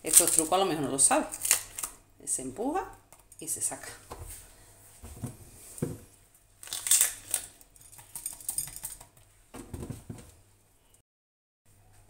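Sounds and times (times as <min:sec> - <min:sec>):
peppers crunching and crackling: 0:00.0 - 0:02.0, 0:06.6 - 0:09.0.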